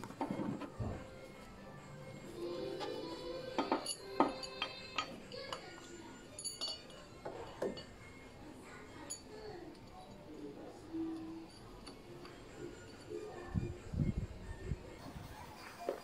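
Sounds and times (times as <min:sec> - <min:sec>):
metal tools clinking: 0:02.6 - 0:08.0, 0:09.0 - 0:13.5.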